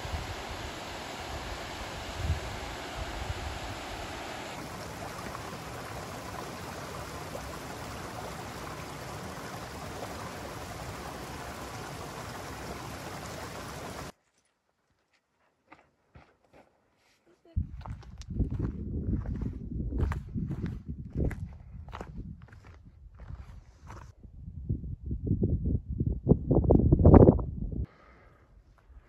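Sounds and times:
stream rushing over rocks: 0.0 - 14.1.

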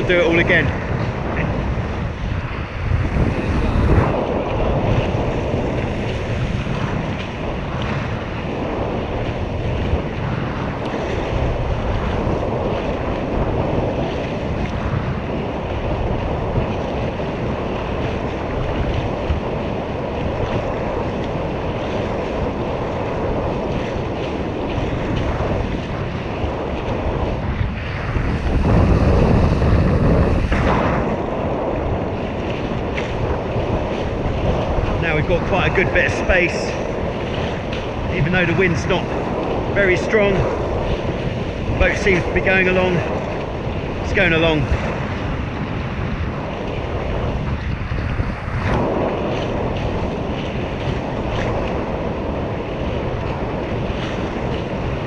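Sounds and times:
water rushing along hulls: 0.0 - 55.0
wind buffeting microphone: 0.0 - 55.0.

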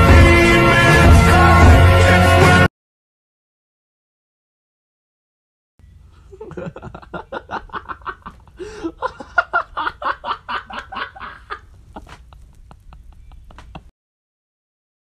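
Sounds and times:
person laughing uncontrollably: 6.3 - 13.9.

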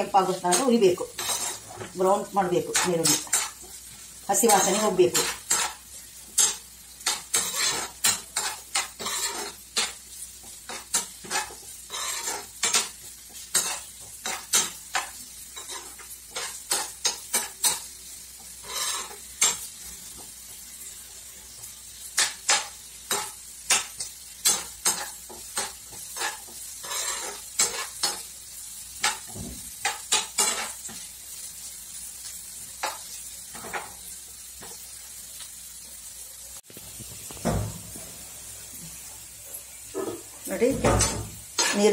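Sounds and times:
metal spoon scraping pan: 0.0 - 5.8, 6.4 - 10.0, 10.7 - 17.9, 18.5 - 20.2, 22.2 - 28.3, 29.0 - 31.0, 39.9 - 41.9
onions sizzling in oil: 0.0 - 41.9.

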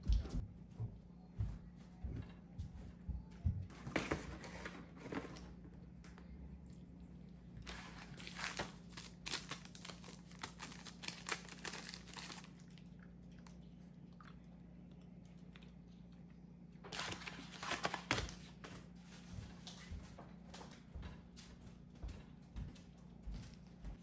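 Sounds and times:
paper crinkling and rustling: 3.7 - 5.7, 7.6 - 12.6, 16.9 - 19.8.

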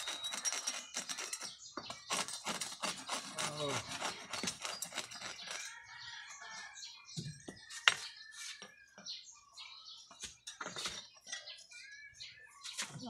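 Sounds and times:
hacksaw rasping through horn: 0.0 - 5.7
bird calls: 0.0 - 13.0.

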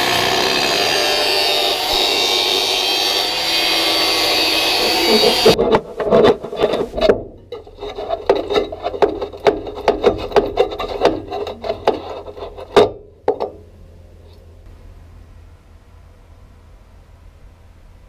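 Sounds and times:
hand scraping on steel frame: 4.4 - 13.0
sharp knocks: 4.8 - 13.6.

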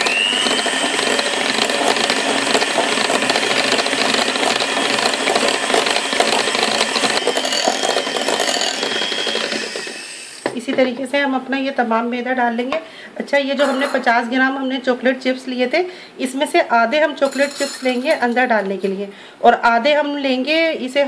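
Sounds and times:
electric hand mixer whirring: 0.0 - 10.6.

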